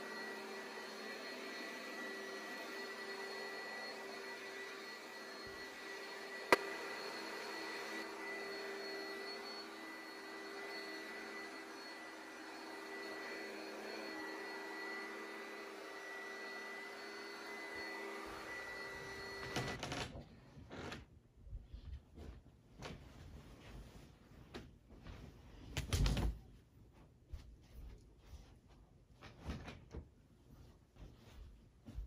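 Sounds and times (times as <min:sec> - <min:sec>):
vacuum cleaner running: 0:00.0 - 0:20.0
bedding rustling: 0:21.6 - 0:32.0.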